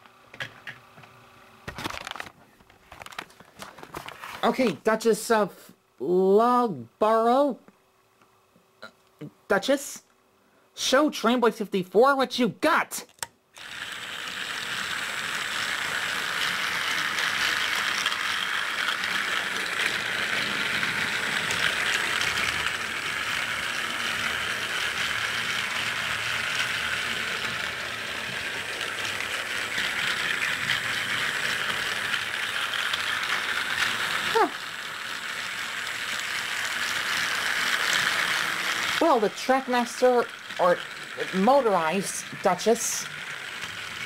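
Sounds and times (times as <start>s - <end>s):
toy train motor whirring rattle: 2.9s - 4.8s, 13.0s - 44.0s
toy train click: 13.0s - 44.0s.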